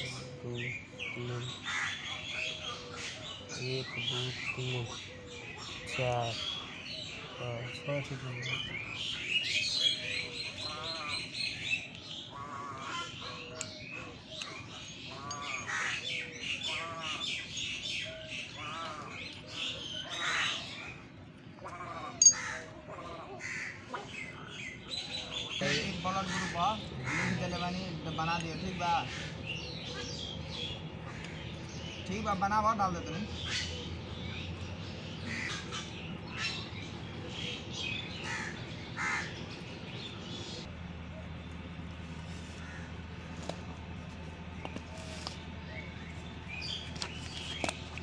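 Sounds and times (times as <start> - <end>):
harsh bird call: 0.0 - 41.4
small birds chirping: 0.0 - 48.0.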